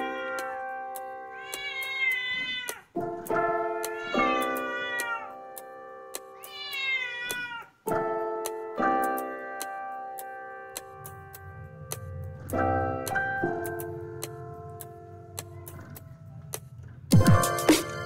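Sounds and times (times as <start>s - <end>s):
cat meowing: 0.0s - 0.7s, 1.3s - 3.0s, 3.8s - 5.4s, 6.4s - 7.8s
background music with ticking beat: 0.0s - 18.0s.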